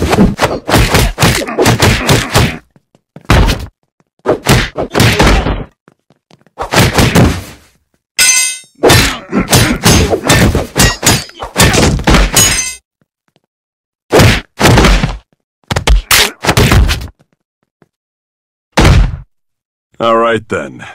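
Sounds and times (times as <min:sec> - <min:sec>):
cartoon punches and whacks: 0:00.0 - 0:02.6, 0:03.3 - 0:03.7, 0:04.3 - 0:05.7, 0:06.6 - 0:07.5, 0:08.8 - 0:12.5, 0:14.1 - 0:17.1, 0:18.8 - 0:19.3.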